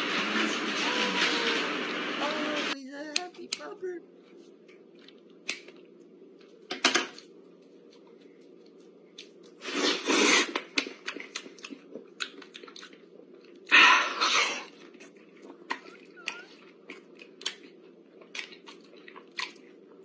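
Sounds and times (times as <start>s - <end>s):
wet chewing and biting: 7.2s - 13.8s, 14.7s - 20.0s.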